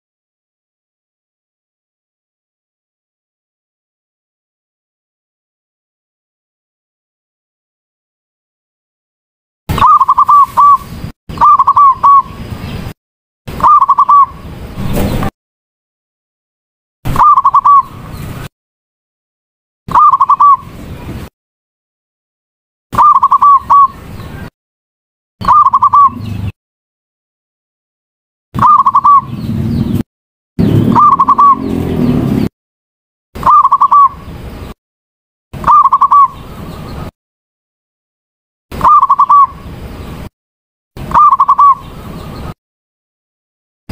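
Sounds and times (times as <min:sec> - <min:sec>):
dove cooing: 0:11.4 - 0:12.2, 0:13.6 - 0:14.3, 0:17.2 - 0:17.9, 0:19.9 - 0:20.6, 0:23.0 - 0:23.9, 0:25.4 - 0:26.4, 0:28.6 - 0:29.4, 0:30.9 - 0:31.7, 0:33.4 - 0:34.2, 0:35.6 - 0:36.3, 0:41.1 - 0:41.8.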